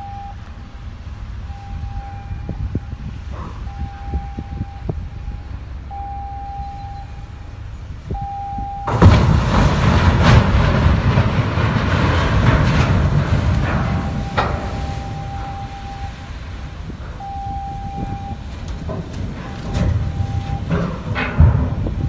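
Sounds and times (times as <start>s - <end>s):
low rumble: 0.0s - 22.0s
ship hulls crunching and grinding: 8.8s - 22.0s.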